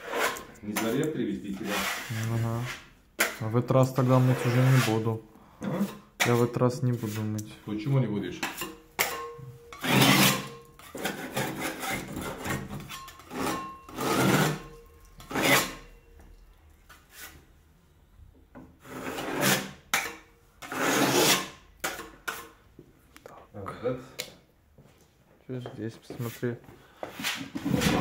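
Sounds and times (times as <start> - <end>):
hand scraper rasping on wall: 0.0 - 1.0, 4.0 - 5.1, 8.5 - 15.8, 18.8 - 19.9, 20.6 - 22.4.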